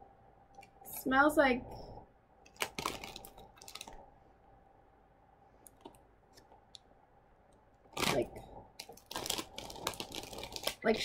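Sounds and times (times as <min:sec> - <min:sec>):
plastic snack bag crinkling: 0:02.4 - 0:04.0, 0:07.9 - 0:11.0.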